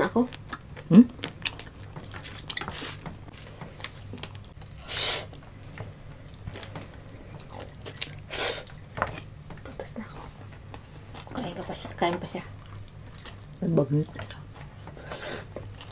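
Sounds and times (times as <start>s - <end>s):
wet mouth clicks and chewing: 0.3s - 3.0s, 7.4s - 8.8s, 12.6s - 15.9s.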